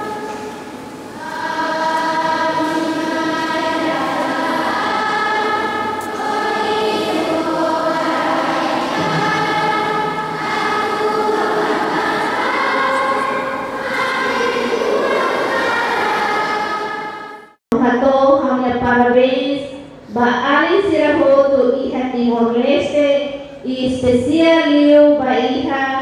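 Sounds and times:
choir singing a hymn: 0.0 - 17.6.

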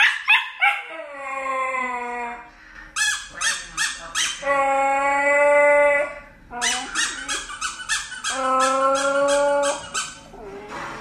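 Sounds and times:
dog yipping: 0.0 - 1.0, 3.0 - 4.5, 6.6 - 10.3
dog howling: 8.3 - 10.7.

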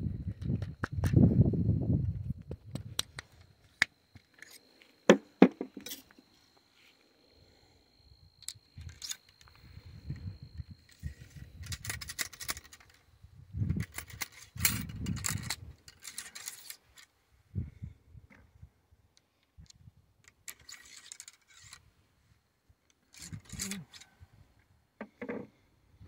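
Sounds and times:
ramrod scraping in a barrel: 23.1 - 24.1.

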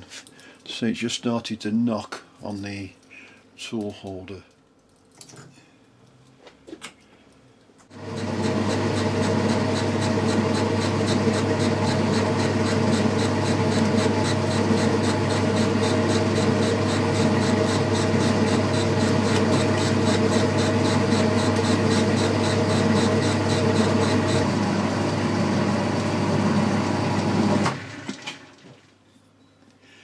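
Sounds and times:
metal lathe humming: 8.0 - 27.8
cutting tool scraping metal: 9.0 - 24.4.

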